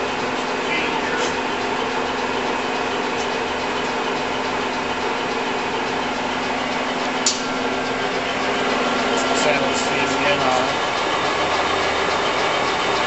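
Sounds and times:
lathe motor humming: 0:00.0 - 0:13.0
sharp click: 0:07.2 - 0:07.5.

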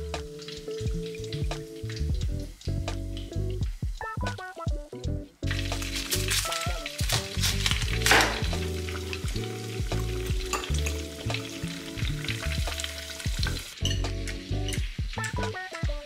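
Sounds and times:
tofu sizzling in oil: 0:00.0 - 0:04.4, 0:05.4 - 0:16.0
background music with bass: 0:00.0 - 0:16.0.

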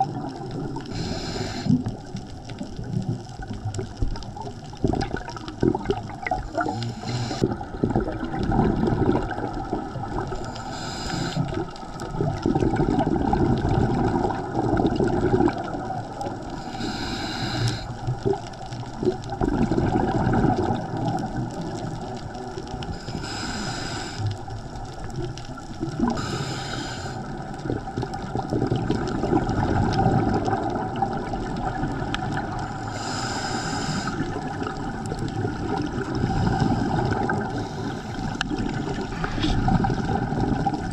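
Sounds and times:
gurgling exhaled bubbles: 0:00.0 - 0:40.9
regulator hissing inhale: 0:00.8 - 0:02.1, 0:06.5 - 0:07.6, 0:10.3 - 0:11.8, 0:16.5 - 0:18.1, 0:22.9 - 0:24.5, 0:26.0 - 0:27.4, 0:32.7 - 0:34.5, 0:36.2 - 0:38.4, 0:39.0 - 0:39.8.

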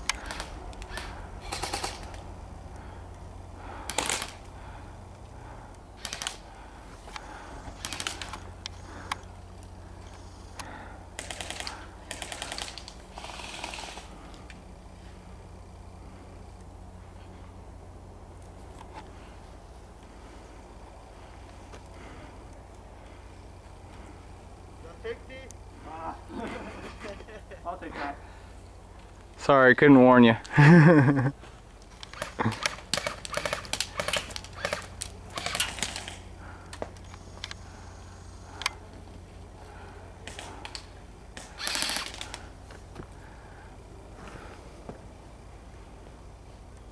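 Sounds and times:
airsoft guns firing: 0:00.0 - 0:02.3, 0:03.8 - 0:04.5, 0:06.0 - 0:06.5, 0:07.7 - 0:08.5, 0:11.2 - 0:14.2, 0:32.0 - 0:36.3, 0:40.2 - 0:42.5
sharp clicks and crackles: 0:00.0 - 0:02.9, 0:03.9 - 0:04.5, 0:05.2 - 0:06.5, 0:07.1 - 0:14.6, 0:31.8 - 0:37.6, 0:40.2 - 0:42.8.

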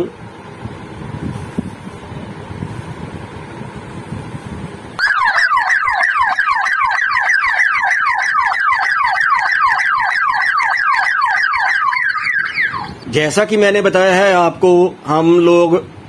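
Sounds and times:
electronic alarm siren sweeping: 0:05.0 - 0:13.1.

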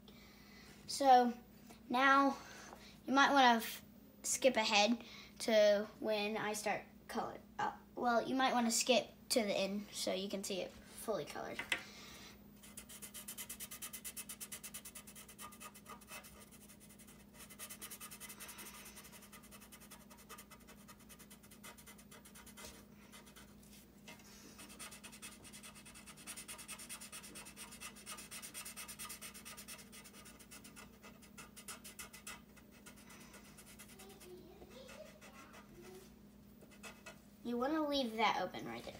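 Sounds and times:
marker scratching on paper: 0:12.6 - 0:23.5, 0:24.6 - 0:37.2.

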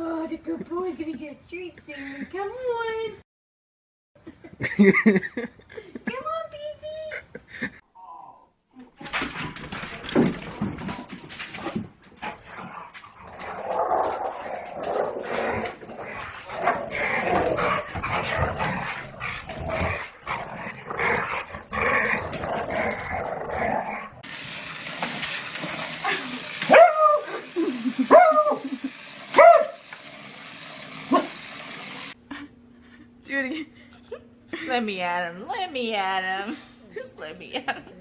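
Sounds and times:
dogs yipping and growling: 0:11.7 - 0:24.2, 0:26.0 - 0:29.8
dog barking: 0:26.7 - 0:27.3, 0:29.4 - 0:29.8.

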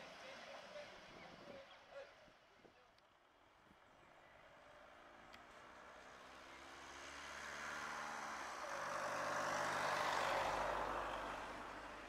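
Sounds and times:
motor vehicle passing by: 0:06.0 - 0:12.0.

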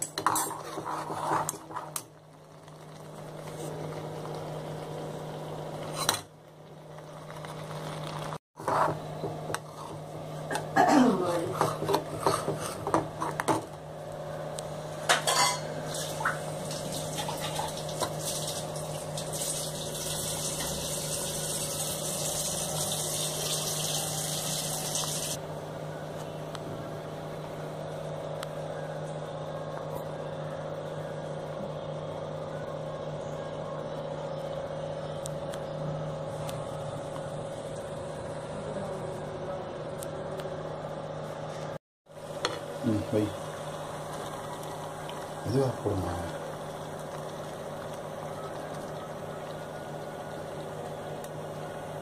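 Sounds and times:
metal ladle scraping metal pot: 0:00.2 - 0:02.0.

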